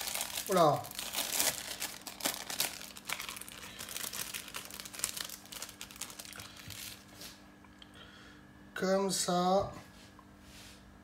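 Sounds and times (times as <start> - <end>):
plastic wrapper crinkling: 0.0 - 7.2.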